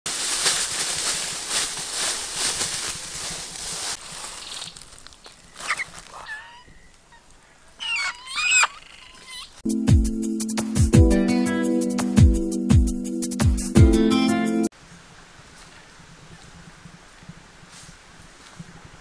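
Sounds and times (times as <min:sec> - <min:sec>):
dry leaves crackling and rustling: 0:00.1 - 0:07.4
hen squawking: 0:05.5 - 0:09.6
hen clucking: 0:05.6 - 0:09.6.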